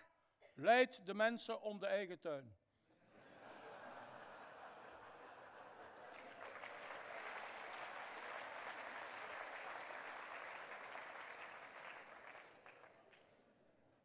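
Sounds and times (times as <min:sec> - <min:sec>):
audience applauding: 0:04.5 - 0:13.3.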